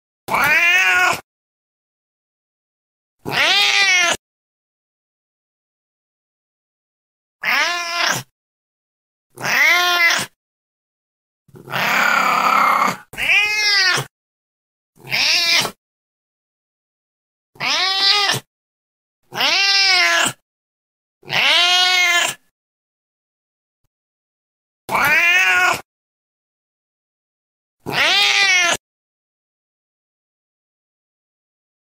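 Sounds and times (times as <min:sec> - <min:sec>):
cat meowing: 0:00.3 - 0:01.2, 0:03.3 - 0:04.2, 0:07.4 - 0:08.3, 0:09.4 - 0:10.4, 0:11.6 - 0:14.1, 0:15.0 - 0:15.8, 0:17.6 - 0:18.5, 0:19.3 - 0:20.4, 0:21.2 - 0:22.4, 0:24.9 - 0:25.8, 0:27.9 - 0:28.8.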